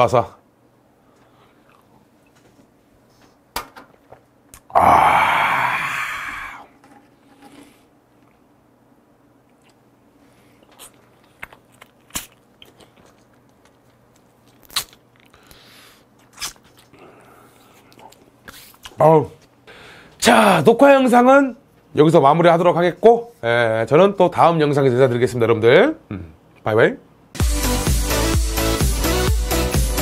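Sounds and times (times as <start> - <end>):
quiet eating sounds: 1.0 - 8.6, 9.4 - 19.6
man exclaiming ahh: 4.7 - 6.7.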